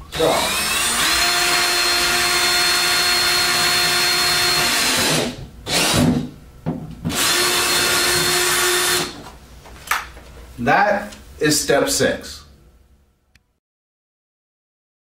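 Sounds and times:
cordless drill boring plastic: 0.1s - 6.2s, 7.1s - 9.2s.

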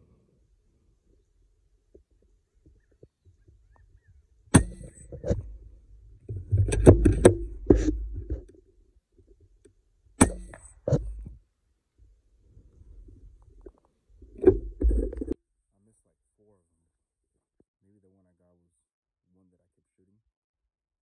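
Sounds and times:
air rifle shot: 4.5s - 5.0s
handling clicks and thumps: 4.5s - 5.6s, 6.2s - 8.6s, 13.4s - 15.4s.

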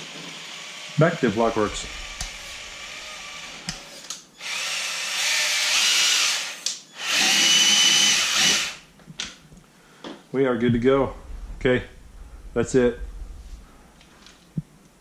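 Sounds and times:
electric motor whine: 1.5s - 3.8s.

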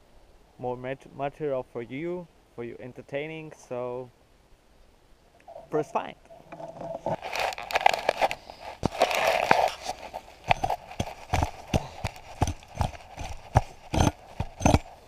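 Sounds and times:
scraping rustle: 6.3s - 15.0s.

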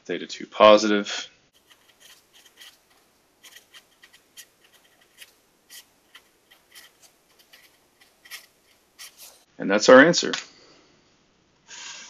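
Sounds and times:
marker writing on paper: 1.6s - 9.5s.

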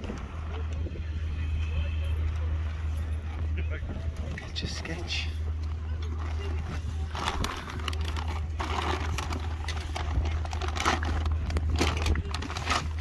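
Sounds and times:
plastic bag crinkling: 6.1s - 13.0s.

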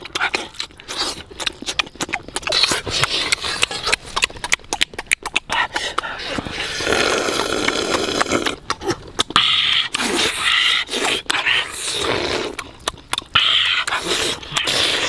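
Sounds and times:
person chewing and lip-smacking: 0.0s - 15.0s
person slurping broth: 5.5s - 12.8s, 13.4s - 15.0s.

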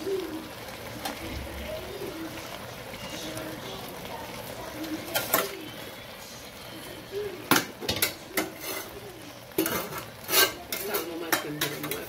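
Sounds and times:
utensil clinking on metal pot: 7.5s - 12.0s.

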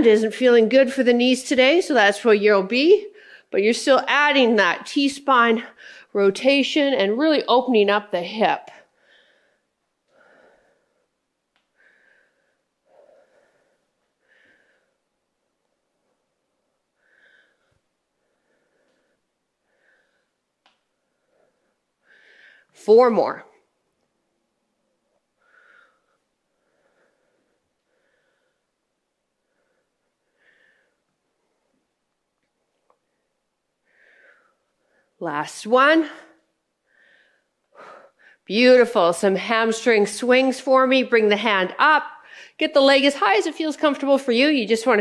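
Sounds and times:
woman breathing softly: 8.9s - 15.1s, 17.0s - 22.8s, 25.4s - 31.8s, 33.8s - 35.2s, 36.8s - 38.5s.

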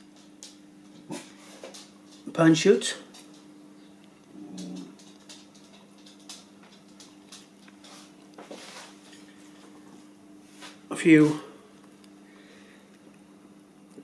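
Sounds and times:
steady low hum: 0.0s - 14.0s
dog whining: 4.3s - 5.0s.

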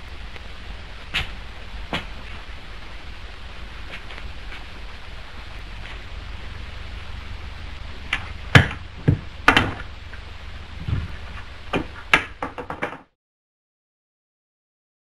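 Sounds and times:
film soundtrack hiss: 0.0s - 13.0s
dull thuds: 0.9s - 2.6s, 8.0s - 13.0s
pool balls clicking: 8.0s - 13.1s.

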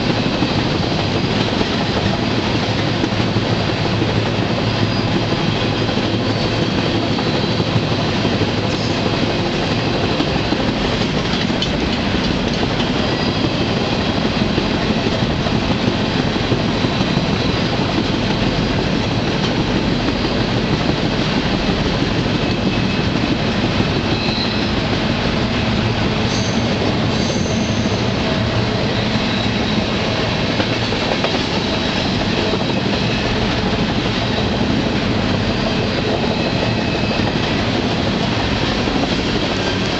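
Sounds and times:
train wheels rumbling on rail: 0.0s - 39.9s
high-pitched wheel squeals: 24.1s - 24.8s, 26.3s - 28.0s.

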